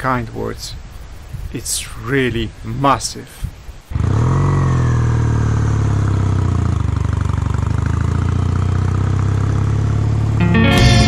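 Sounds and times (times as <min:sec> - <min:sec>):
motorcycle engine idling: 0:04.0 - 0:10.5.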